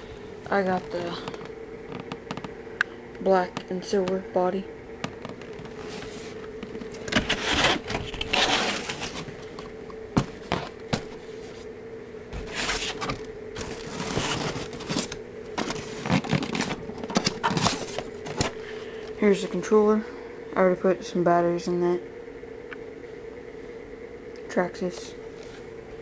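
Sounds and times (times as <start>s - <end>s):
faint steady hum: 0.0s - 26.0s
packaging scraping and rustling: 5.5s - 9.5s, 12.4s - 18.6s.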